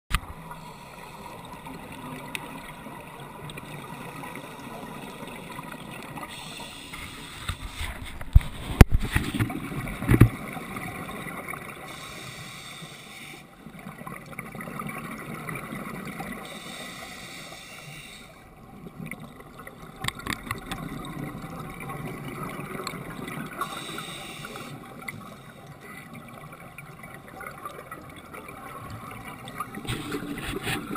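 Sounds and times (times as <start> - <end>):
underwater regulator breathing: 6.2 - 9.4, 11.8 - 13.5, 16.4 - 18.5, 23.6 - 26.0, 29.8 - 30.9.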